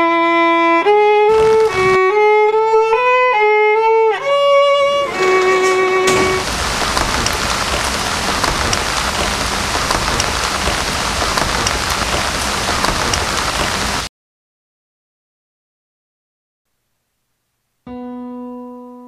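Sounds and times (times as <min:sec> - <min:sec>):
heavy rain hiss: 0:01.3 - 0:14.1
raindrop ticks: 0:04.8 - 0:14.1.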